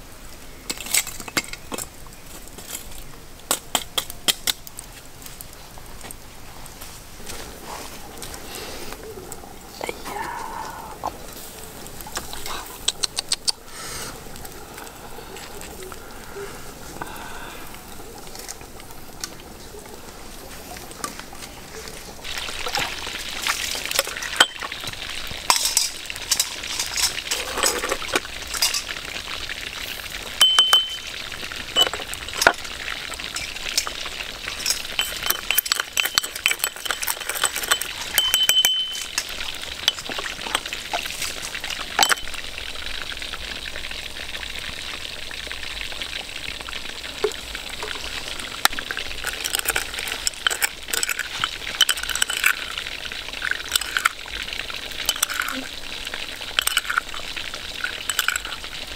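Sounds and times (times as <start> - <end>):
meat sizzling on grill: 0.0 - 58.9
spoon scraping ceramic cup: 31.8 - 32.6, 34.5 - 39.3, 49.2 - 52.8, 53.4 - 54.1, 55.1 - 55.6, 56.6 - 57.2, 57.8 - 58.6.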